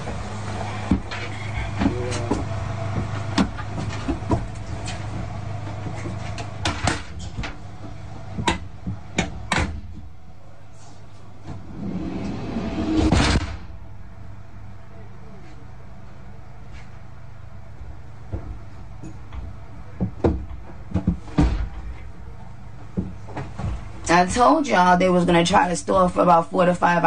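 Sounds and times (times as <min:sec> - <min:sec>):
vehicle engine humming: 0:00.0 - 0:26.0
doors knocking and clunking: 0:00.8 - 0:10.1, 0:18.3 - 0:22.2
loud burst of noise: 0:11.6 - 0:14.2.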